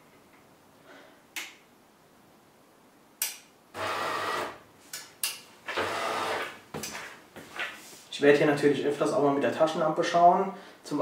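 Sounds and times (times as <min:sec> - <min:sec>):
coffee machine buzzing hum: 0:03.8 - 0:04.6, 0:05.7 - 0:06.5.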